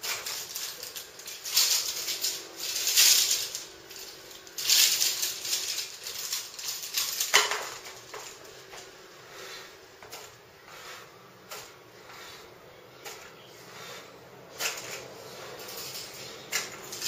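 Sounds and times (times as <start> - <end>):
steel springs rattling: 0.0 - 8.8, 14.5 - 17.0.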